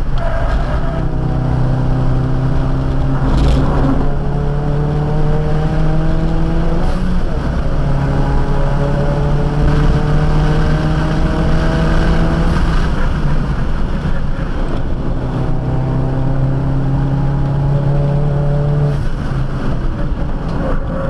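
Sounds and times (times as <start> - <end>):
car engine accelerating hard: 0.0 - 21.0.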